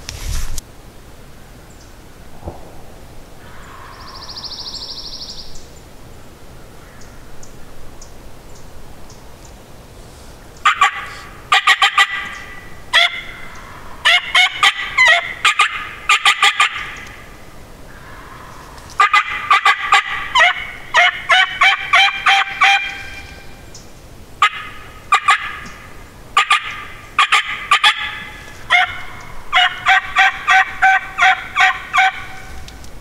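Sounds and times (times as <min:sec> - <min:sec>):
turkeys gobbling: 0:10.6 - 0:17.2, 0:17.9 - 0:23.6, 0:24.4 - 0:32.6.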